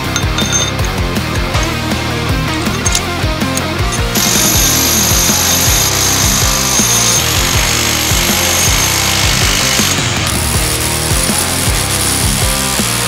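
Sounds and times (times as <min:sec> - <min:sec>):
music with thumping beat: 0:00.0 - 0:13.0
demolition hammer chipping concrete: 0:04.0 - 0:13.0.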